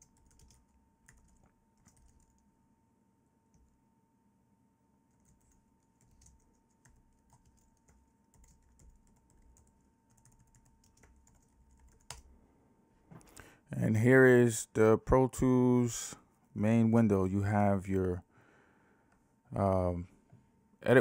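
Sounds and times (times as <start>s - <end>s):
typing on keyboard: 0.0s - 2.4s, 5.1s - 12.3s.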